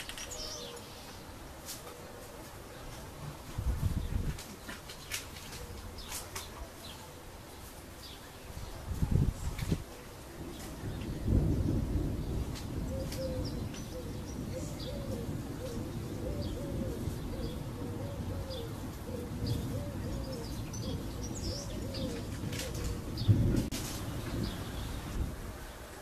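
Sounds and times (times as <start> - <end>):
small birds chirping: 0.0 - 26.0
dove cooing: 11.5 - 23.7.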